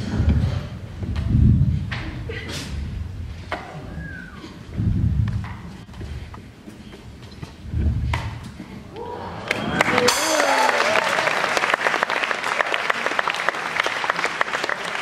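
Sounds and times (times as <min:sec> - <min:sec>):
low thuds: 0:00.0 - 0:09.0
people whooping: 0:08.9 - 0:15.0
audience applauding: 0:09.0 - 0:15.0.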